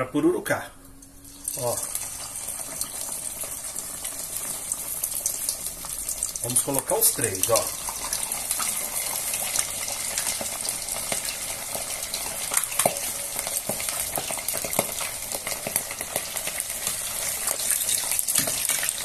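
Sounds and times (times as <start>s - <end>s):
pork deep-frying in hot oil: 0.9s - 19.0s
crackling pops: 12.5s - 16.3s.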